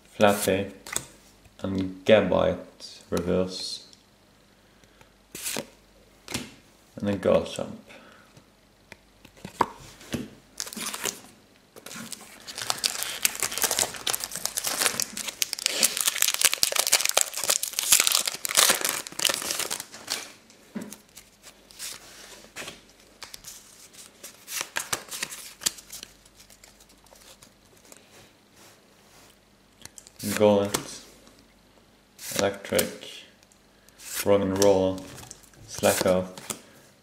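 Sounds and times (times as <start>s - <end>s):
foil wrapper tearing and crinkling: 11.9s - 20.4s.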